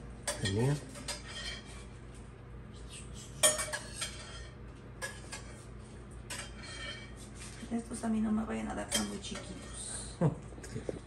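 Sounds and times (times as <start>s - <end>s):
metal spoon clinking against pot: 0.2s - 1.6s, 3.4s - 5.5s, 8.9s - 9.5s.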